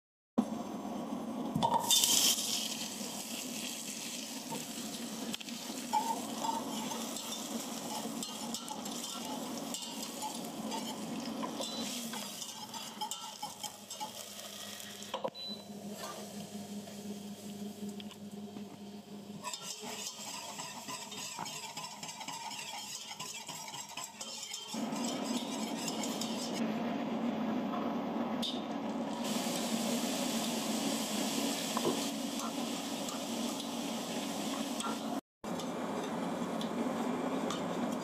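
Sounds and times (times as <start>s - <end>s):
contents sizzling: 1.6s - 15.2s, 19.4s - 26.6s, 29.1s - 38.0s
whisk scraping a metal pot: 5.9s - 14.2s, 19.4s - 26.6s.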